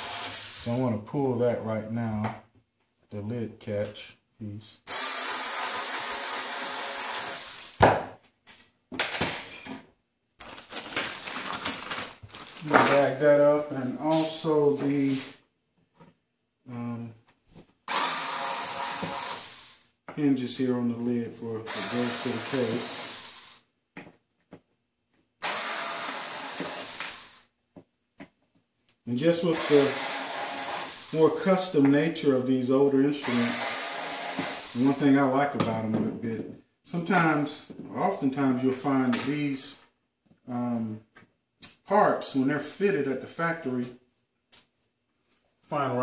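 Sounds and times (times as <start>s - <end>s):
cordless drill running: 0.0s - 0.6s, 4.9s - 7.8s, 17.9s - 19.8s, 21.7s - 23.7s, 25.4s - 27.5s, 29.5s - 31.2s, 33.2s - 35.0s.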